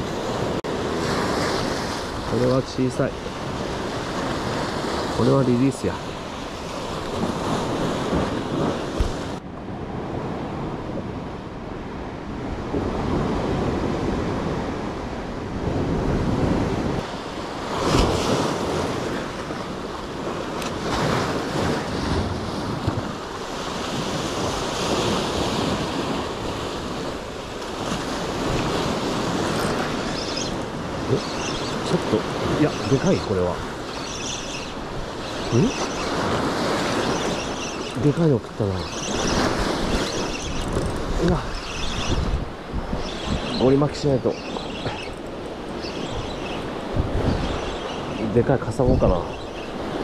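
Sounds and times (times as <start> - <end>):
sea waves: 0.0 - 50.0
wind buffeting microphone: 0.0 - 50.0.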